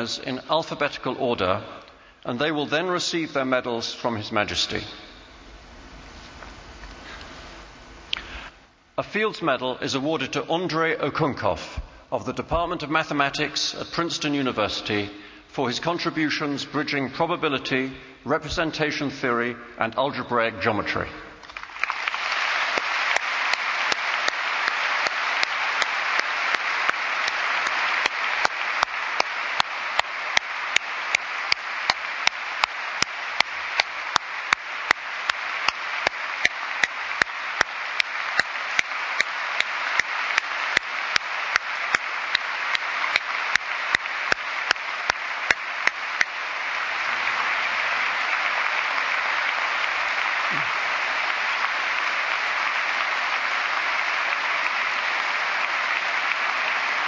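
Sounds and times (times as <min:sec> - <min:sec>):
audience applauding: 0:21.4 - 0:57.0
sharp single claps: 0:22.8 - 0:46.4.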